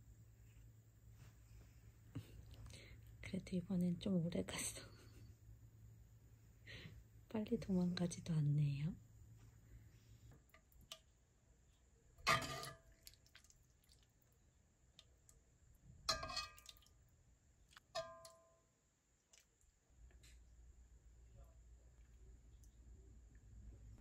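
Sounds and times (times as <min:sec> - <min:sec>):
metal ladle clinking on pot: 0:12.2 - 0:12.8, 0:16.1 - 0:16.8, 0:18.0 - 0:18.4.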